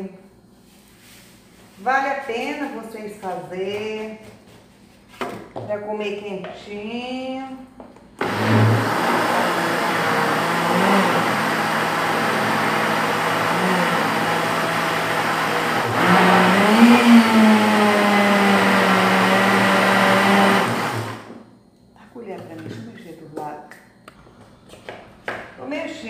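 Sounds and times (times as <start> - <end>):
blender running: 8.2 - 21.4.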